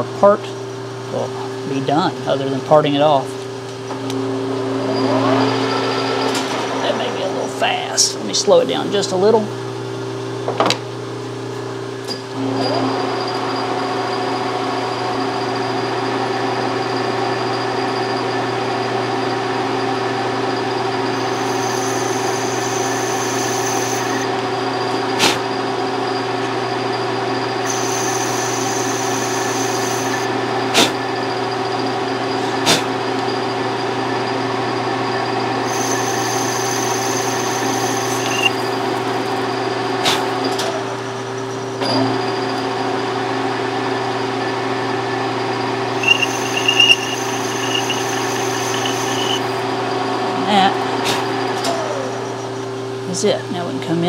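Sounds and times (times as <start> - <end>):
lathe motor humming: 20.9 - 24.5, 27.6 - 30.3, 35.6 - 39.4, 46.0 - 49.7
high cutting hiss: 21.2 - 24.2, 27.7 - 30.3, 35.7 - 38.8, 46.0 - 49.6.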